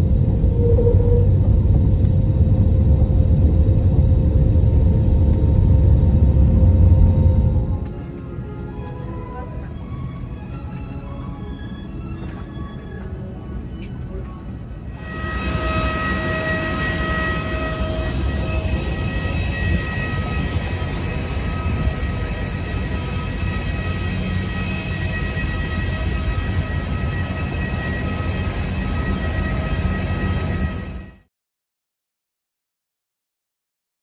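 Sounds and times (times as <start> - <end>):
aircraft turbine engines rumbling: 0.0 - 31.3
high whining tones: 4.6 - 31.3.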